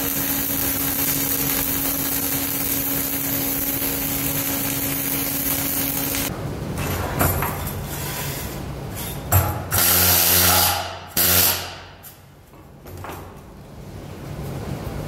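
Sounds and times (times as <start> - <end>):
arc welding hissing and crackling: 0.0 - 6.3, 9.7 - 12.2.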